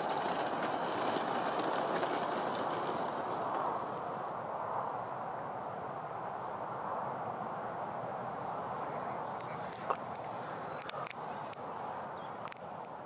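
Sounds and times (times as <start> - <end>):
model jet rolling on dirt: 0.0 - 5.8.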